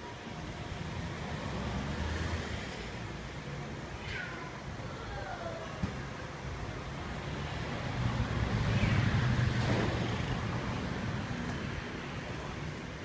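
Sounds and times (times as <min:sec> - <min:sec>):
steady background hum: 0:00.0 - 0:13.0
passing vehicle rumble: 0:07.0 - 0:13.0.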